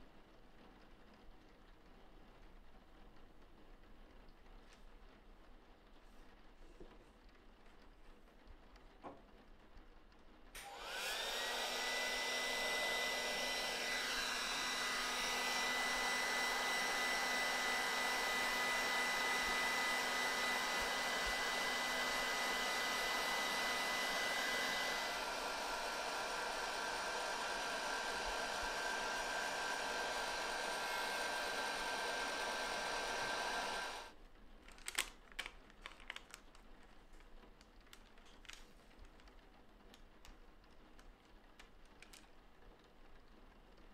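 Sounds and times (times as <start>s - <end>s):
heat gun whine: 10.6s - 34.2s.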